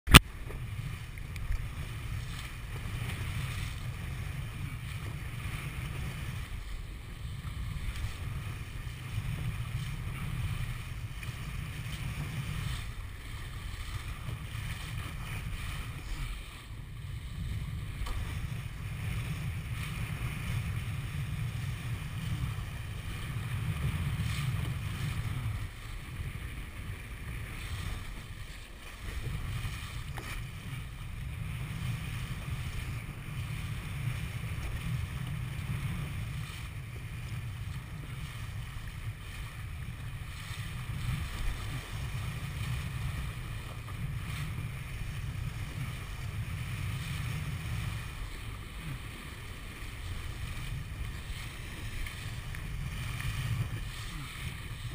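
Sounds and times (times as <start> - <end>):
water splashing along hull: 0.1 - 54.9
wind buffeting microphone: 0.1 - 54.9.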